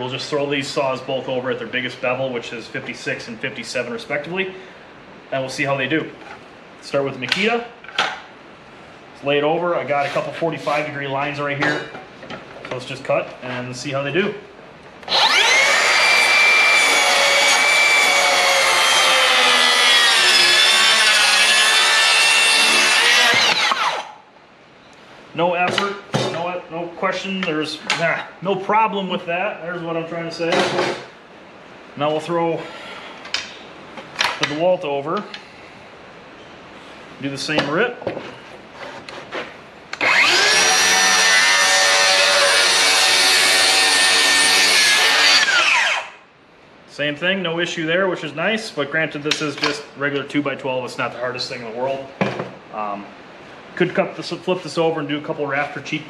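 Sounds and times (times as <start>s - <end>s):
circular saw cutting wood: 15.1s - 24.1s, 40.0s - 46.2s.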